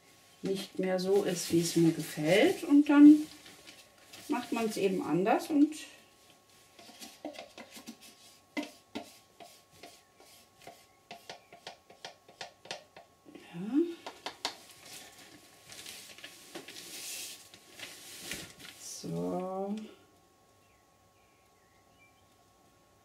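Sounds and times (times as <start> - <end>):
plastic cups and lid clicking: 6.8 - 8.0.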